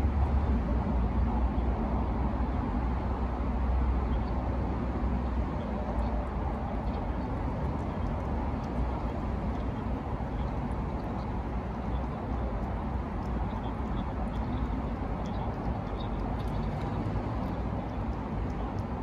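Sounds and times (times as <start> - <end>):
low outdoor rumble: 0.0 - 19.0
cat chewing and licking: 5.4 - 19.0.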